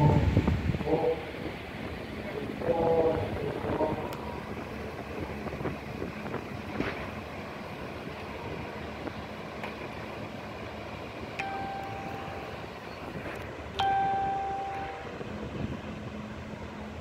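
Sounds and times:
wind on microphone: 0.0s - 9.4s, 11.8s - 17.0s
distant surf: 0.0s - 17.0s.

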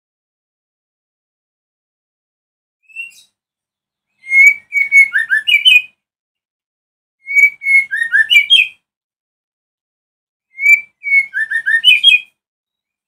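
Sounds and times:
bird singing whistled notes: 2.8s - 3.4s, 4.1s - 6.0s, 7.2s - 8.9s, 10.5s - 12.9s.

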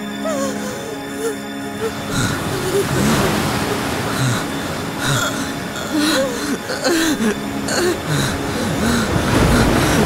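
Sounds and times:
person laughing softly: 0.3s - 4.4s
person sighing: 0.3s - 10.0s.

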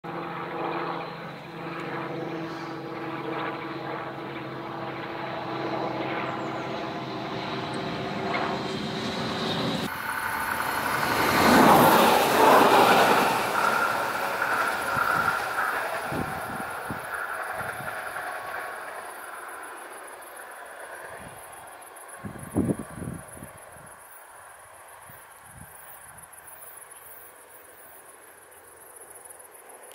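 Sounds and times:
diesel railcar engine drone: 6.9s - 29.9s
wheels on rails: 9.8s - 23.3s.

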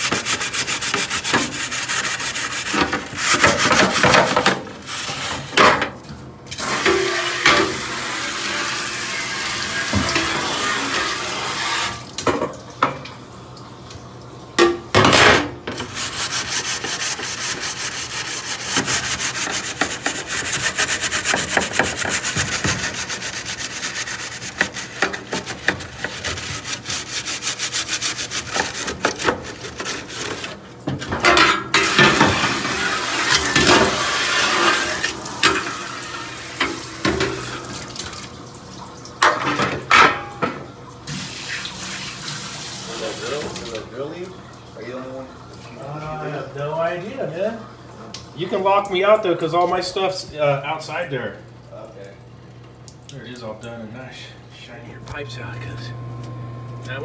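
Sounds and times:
scrubbing metal pan: 0.0s - 5.7s, 15.1s - 37.7s.

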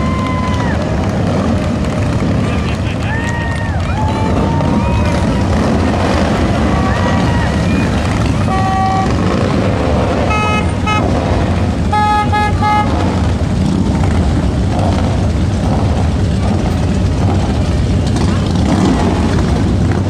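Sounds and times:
low rumble: 0.0s - 20.0s
vehicle horn honking: 8.4s - 9.4s, 10.2s - 11.2s, 11.8s - 13.1s.

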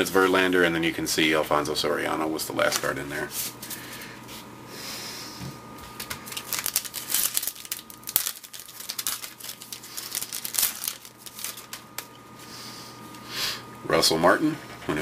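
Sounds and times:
foil wrapper crinkling: 5.9s - 12.1s.

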